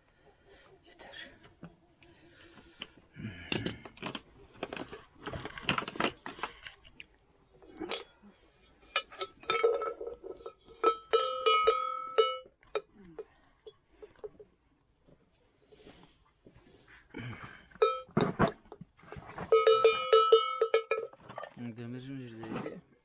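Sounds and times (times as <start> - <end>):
metal bells clinking and clanking: 3.6 - 6.5, 7.8 - 8.2, 8.9 - 14.5, 17.7 - 21.6
bell ringing with clear tone: 19.5 - 21.0.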